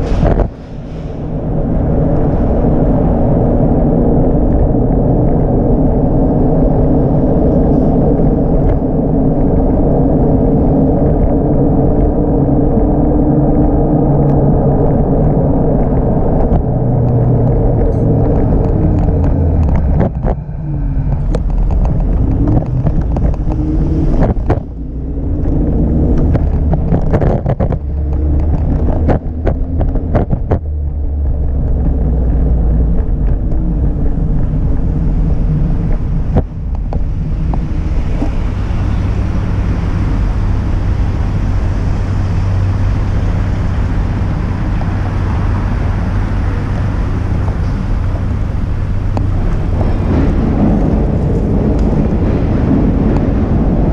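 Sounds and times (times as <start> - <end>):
wind rushing on microphone: 0.0 - 53.9
scooter wheels rumbling on pavement: 1.6 - 53.9.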